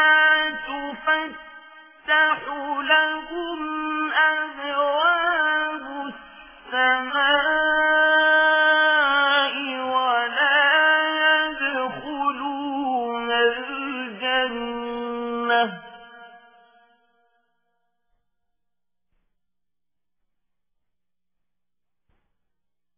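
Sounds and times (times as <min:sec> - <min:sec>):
melodic recitation chanting: 0:00.0 - 0:17.1.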